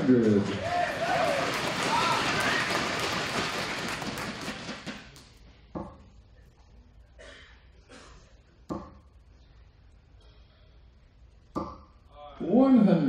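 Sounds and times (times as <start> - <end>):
crowd noise: 0.0 - 5.2
darts thudding into dartboard: 8.7 - 9.0.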